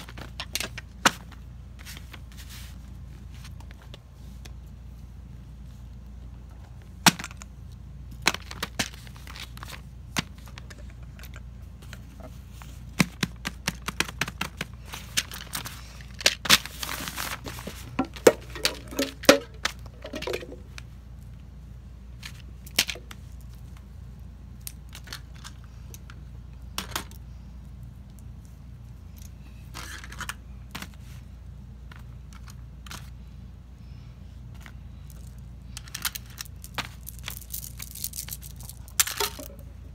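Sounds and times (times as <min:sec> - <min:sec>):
paper rustling: 0:11.8 - 0:19.5.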